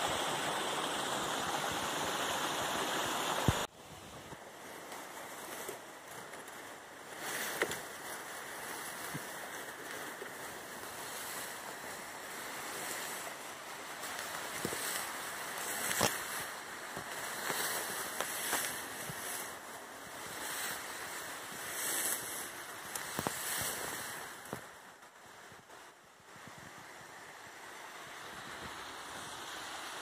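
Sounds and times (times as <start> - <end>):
tall grass rustling: 0.0 - 30.0
stems snapping: 14.1 - 16.4.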